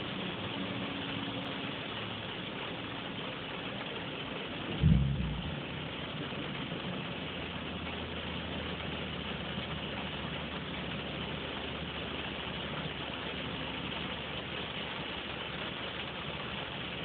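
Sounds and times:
idling vehicle hum: 0:00.0 - 0:17.0.

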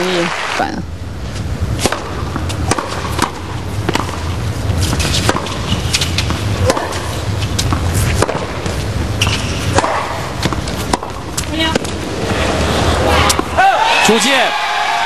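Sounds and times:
low background hum: 0:00.0 - 0:15.0
tennis ball pops: 0:09.7 - 0:11.9.

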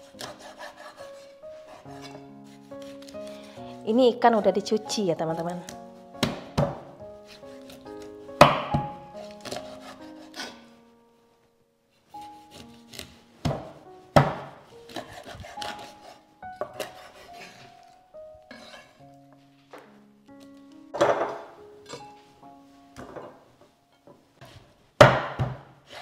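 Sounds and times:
instrumental background music: 0:00.0 - 0:26.0
knife chopping fish: 0:00.1 - 0:03.4, 0:05.3 - 0:10.6, 0:12.2 - 0:17.8.

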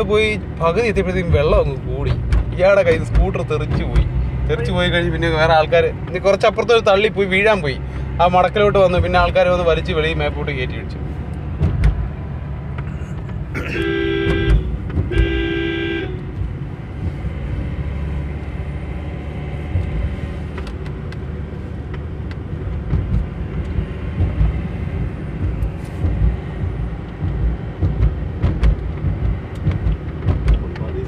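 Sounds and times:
car cabin rumble: 0:00.0 - 0:31.0
car horn blasts: 0:13.6 - 0:16.4.

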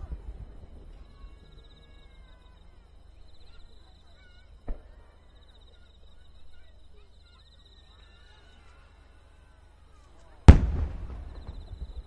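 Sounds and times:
firework bang: 0:00.0 - 0:02.5, 0:10.5 - 0:12.0
faint short calls: 0:00.0 - 0:12.0.

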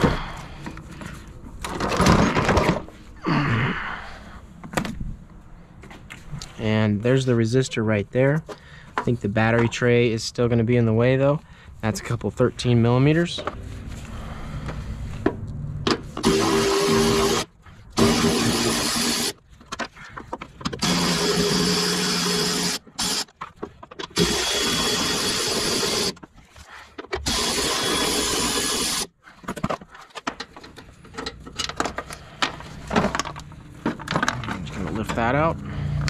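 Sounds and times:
electric ratchet whirring: 0:16.2 - 0:19.4, 0:20.8 - 0:23.4, 0:24.1 - 0:26.2, 0:27.2 - 0:29.1.

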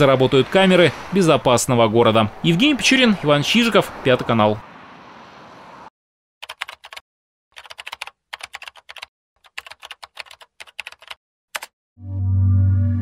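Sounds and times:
keyboard typing: 0:06.4 - 0:07.0, 0:07.6 - 0:11.7.

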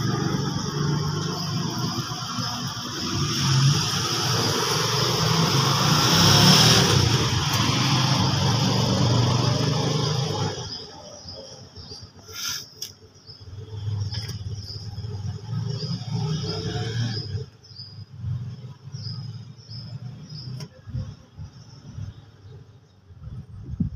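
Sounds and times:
vehicle passing: 0:00.0 - 0:11.0.

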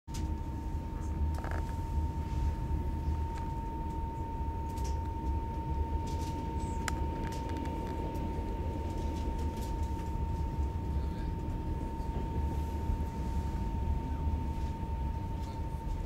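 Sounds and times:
thin steady hum: 0:00.1 - 0:16.0
train low rumble: 0:00.1 - 0:16.0.

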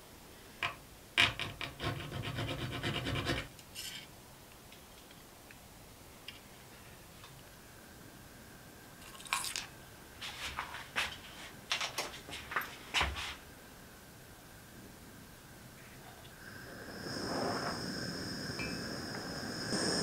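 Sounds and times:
blowtorch hissing and whistling: 0:16.3 - 0:20.0.

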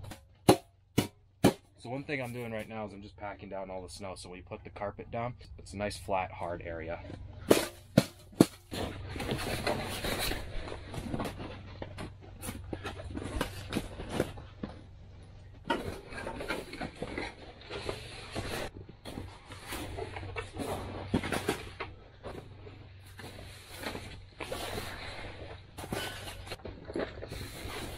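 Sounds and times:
crunching and scraping on snow: 0:06.1 - 0:27.9.

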